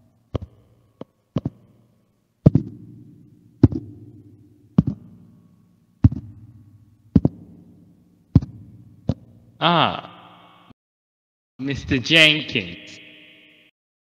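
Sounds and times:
light footstep taps: 0.3s - 1.6s, 7.2s - 7.4s
heavy echoing footsteps: 0.3s - 1.8s, 2.4s - 2.9s, 3.6s - 5.3s, 6.0s - 7.7s, 8.3s - 9.3s.

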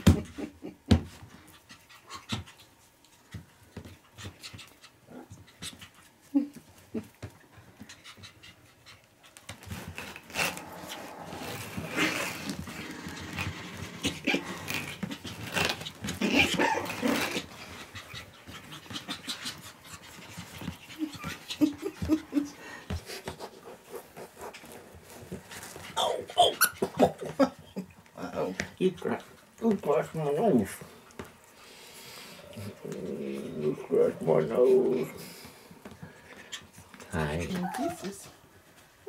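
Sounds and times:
puppies scuffling on carpet: 1.0s - 26.8s, 33.7s - 39.0s
puppies panting: 1.1s - 32.9s, 33.7s - 38.8s.

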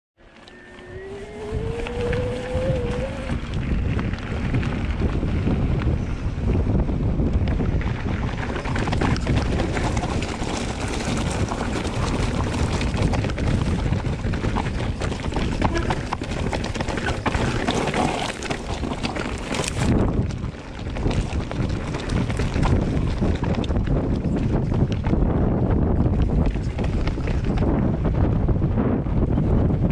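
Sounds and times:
wind buffeting microphone: 0.2s - 29.9s
brief rising tone: 0.3s - 3.4s.

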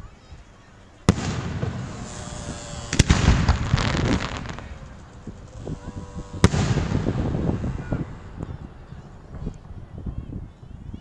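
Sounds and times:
firework crackling: 1.0s - 10.5s
firework shell bursts: 1.1s - 8.4s.

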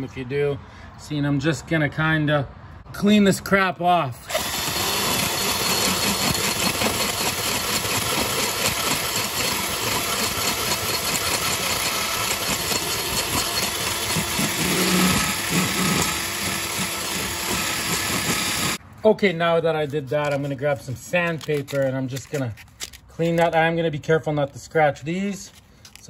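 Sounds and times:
power tool burr grinding metal: 4.3s - 18.8s.

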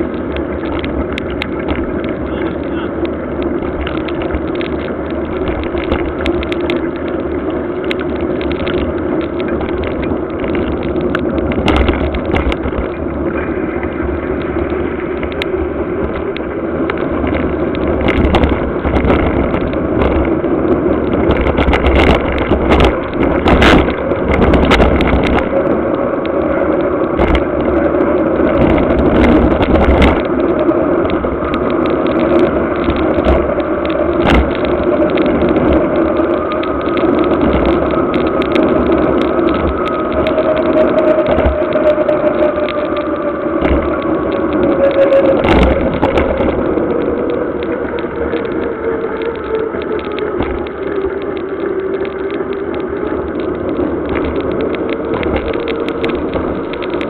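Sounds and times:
bike tyre noise on wet road: 0.0s - 57.0s
wind rush: 0.0s - 57.0s
bike knocks and rattles: 3.0s - 13.6s.

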